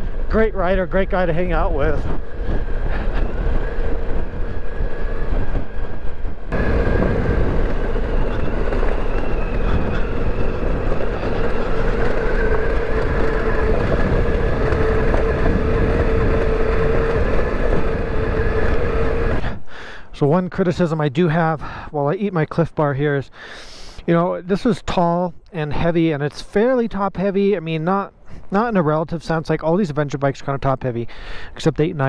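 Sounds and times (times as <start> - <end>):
wind rush: 0.0 - 20.2
tyres on rocky trail: 0.0 - 20.3
motorcycle engine running: 6.5 - 19.4.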